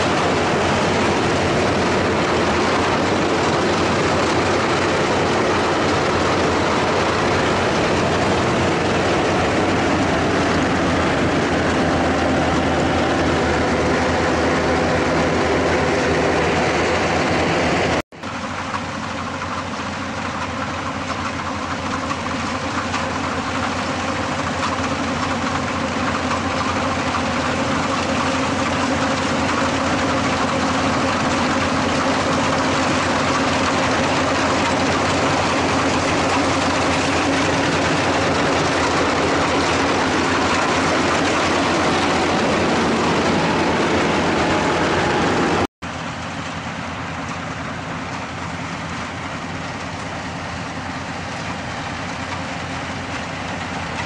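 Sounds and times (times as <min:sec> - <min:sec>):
combine harvester running: 0:00.0 - 0:54.0.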